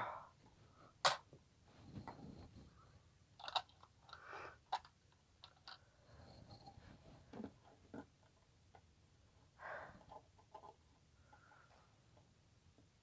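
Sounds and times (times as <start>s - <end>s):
soft rustling: 1.6s - 3.0s
plastic toy bricks clicking: 3.4s - 5.8s.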